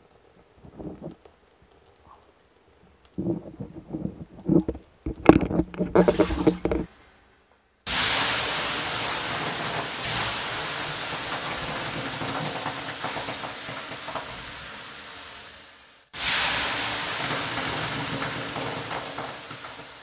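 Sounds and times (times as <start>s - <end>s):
crackling sizzles: 0.0s - 20.0s
steam hissing off hot stones: 7.9s - 20.0s.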